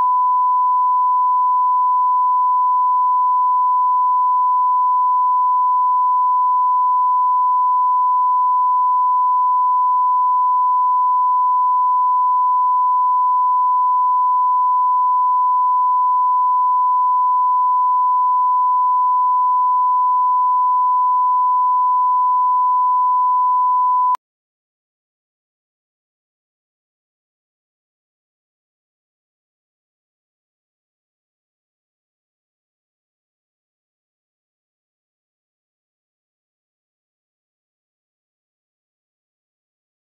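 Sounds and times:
steady test tone beep: 0:00.0 - 0:24.2.

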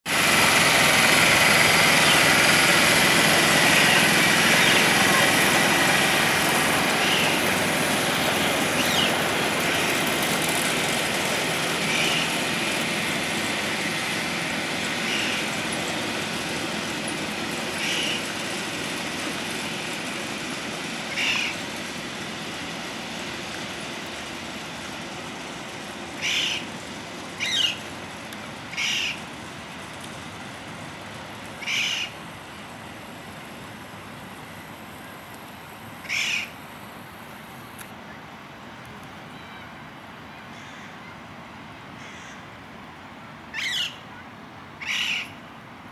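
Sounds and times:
miniature train locomotive running: 0:00.1 - 0:43.7
sharp bird calls: 0:02.0 - 0:02.3, 0:03.6 - 0:05.3, 0:06.9 - 0:07.5, 0:08.4 - 0:10.0, 0:11.8 - 0:12.4, 0:15.0 - 0:15.5, 0:17.8 - 0:18.3, 0:21.1 - 0:21.6, 0:26.2 - 0:26.7, 0:27.4 - 0:27.9, 0:28.7 - 0:29.2, 0:31.6 - 0:32.2, 0:36.0 - 0:36.6, 0:43.5 - 0:44.1, 0:44.8 - 0:45.4.

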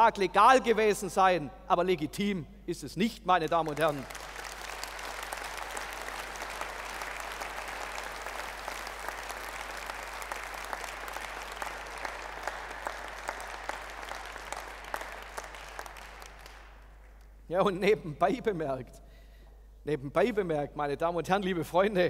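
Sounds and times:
audience applauding: 0:03.5 - 0:17.3.

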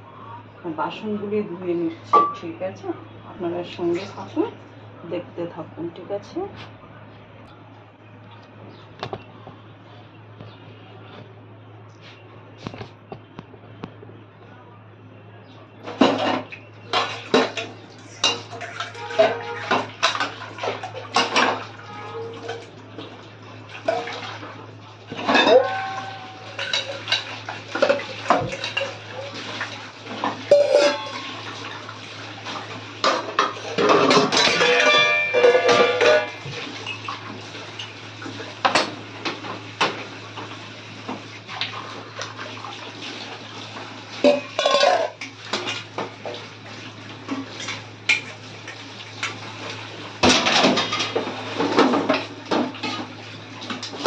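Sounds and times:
steady low hum: 0:00.0 - 0:52.8
pots and cutlery clanking: 0:02.1 - 0:02.5, 0:15.8 - 0:22.6, 0:23.8 - 0:24.2, 0:25.1 - 0:31.8, 0:33.0 - 0:37.0, 0:44.2 - 0:46.1, 0:49.2 - 0:54.0.

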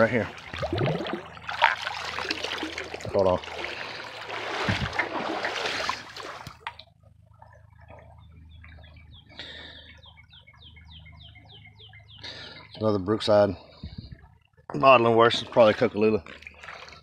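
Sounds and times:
creek water splashing: 0:00.0 - 0:10.0, 0:15.4 - 0:17.0
bird chirping: 0:07.9 - 0:13.2.

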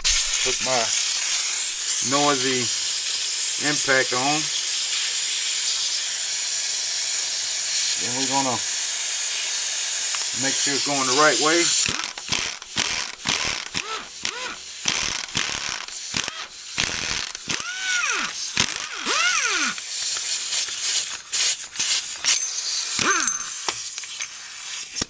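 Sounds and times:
impact wrench hammering: 0:10.1 - 0:24.0
short squeals: 0:13.3 - 0:19.8, 0:22.3 - 0:23.7.

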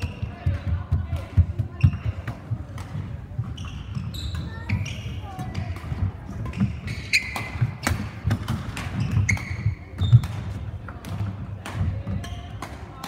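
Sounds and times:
racket hitting shuttlecock: 0:00.1 - 0:13.0
shoe squeaks on floor: 0:01.7 - 0:02.3, 0:03.4 - 0:05.5, 0:06.4 - 0:08.2, 0:08.8 - 0:10.6, 0:12.2 - 0:12.6.

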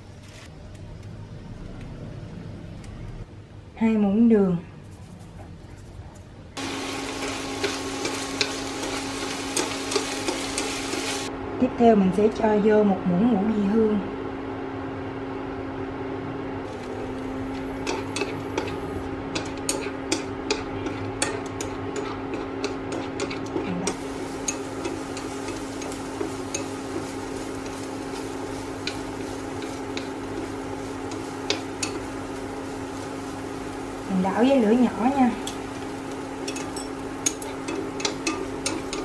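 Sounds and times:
steady low hum: 0:00.0 - 0:39.0
utensil clicking against a pan: 0:17.8 - 0:27.0.

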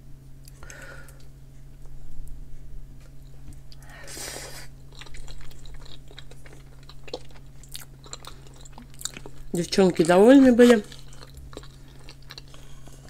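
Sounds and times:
steady low hum: 0:00.0 - 0:13.0
person chewing: 0:03.2 - 0:09.7, 0:10.7 - 0:13.0.

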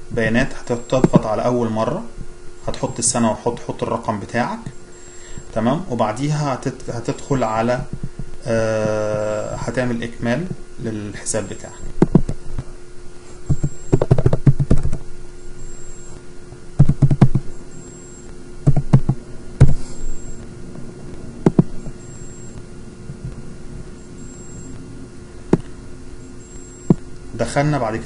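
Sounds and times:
keyboard typing: 0:13.5 - 0:15.0, 0:16.8 - 0:17.4, 0:18.7 - 0:19.8, 0:21.5 - 0:21.7
sharp clicks: 0:16.8 - 0:17.5, 0:18.2 - 0:19.8, 0:21.1 - 0:21.9.

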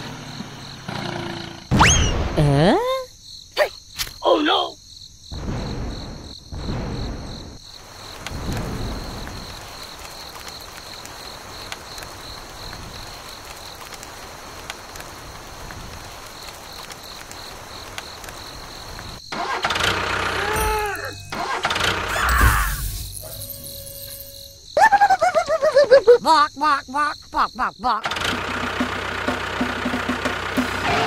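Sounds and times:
rain falling on sand: 0:07.7 - 0:19.2
high pulsing insect trill: 0:15.3 - 0:28.0.

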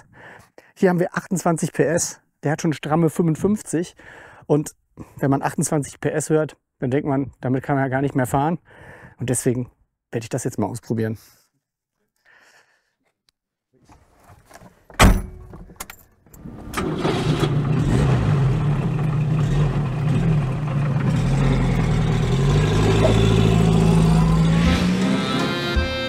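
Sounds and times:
car engine starting and running: 0:16.4 - 0:26.0.

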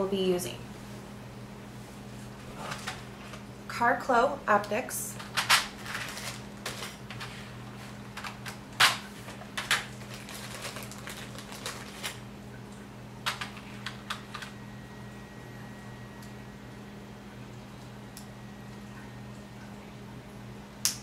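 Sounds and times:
steady low hum: 0:00.0 - 0:21.0
plastic bag crinkling: 0:05.7 - 0:12.2.

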